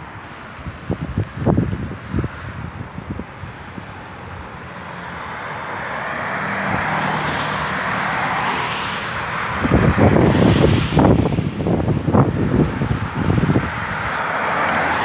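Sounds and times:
wind buffeting microphone: 0:00.6 - 0:15.0
car tyres hissing on wet road: 0:03.4 - 0:15.0.

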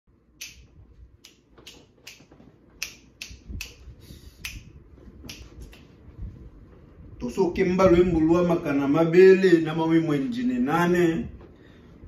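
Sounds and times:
fingers snapping: 0:00.4 - 0:06.0.

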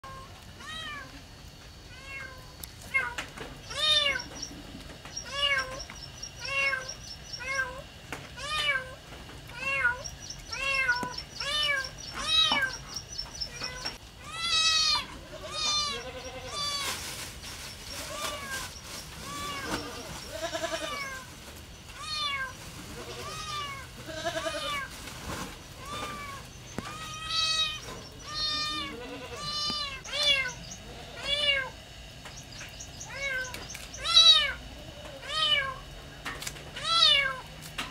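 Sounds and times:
kittens meowing: 0:01.9 - 0:04.4, 0:05.2 - 0:05.8, 0:08.4 - 0:12.9, 0:13.5 - 0:16.9, 0:18.1 - 0:21.2, 0:22.0 - 0:24.9, 0:25.7 - 0:31.8, 0:33.0 - 0:35.8, 0:36.8 - 0:37.5.

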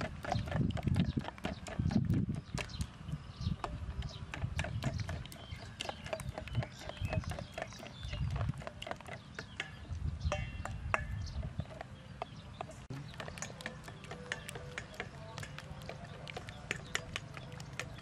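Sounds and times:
metal spoon scraping steel bowl: 0:13.2 - 0:18.0.

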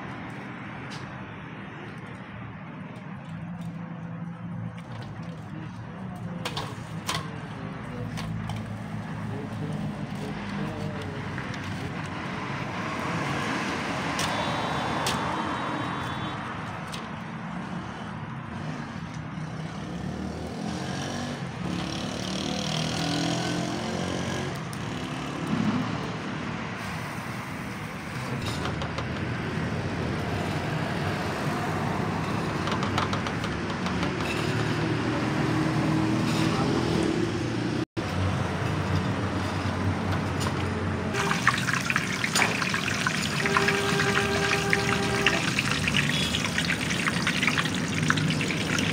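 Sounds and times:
metal ladle scraping wok: 0:41.2 - 0:48.9.

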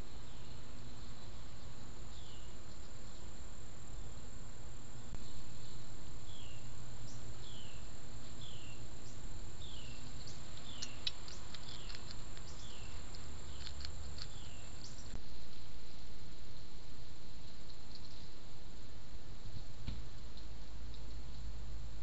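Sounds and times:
steady low hum: 0:00.0 - 0:22.0
sharp ticks: 0:10.0 - 0:15.2.

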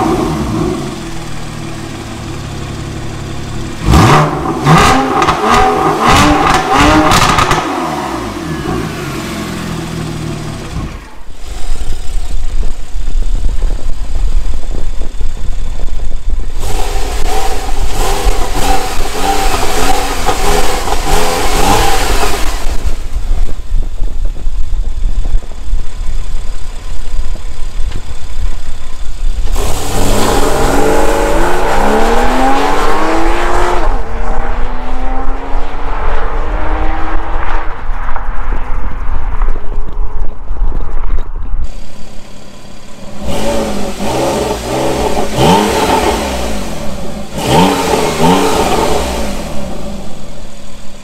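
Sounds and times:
car accelerating hard: 0:00.0 - 0:12.3, 0:16.5 - 0:23.2, 0:29.3 - 0:38.2, 0:41.6 - 0:50.6
sports car engine revving: 0:00.0 - 0:12.6, 0:16.5 - 0:23.5, 0:28.0 - 0:37.8, 0:41.6 - 0:51.0.

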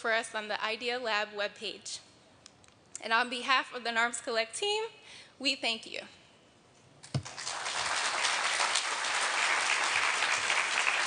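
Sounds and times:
audience applauding: 0:07.2 - 0:11.0.

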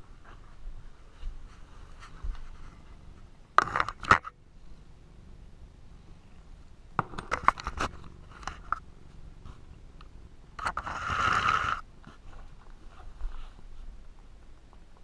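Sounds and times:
scrape on saucer: 0:10.6 - 0:11.8.

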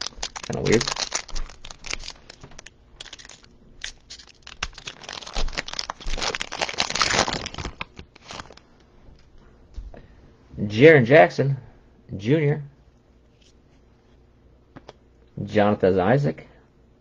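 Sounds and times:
packaging crinkling: 0:00.0 - 0:09.3.

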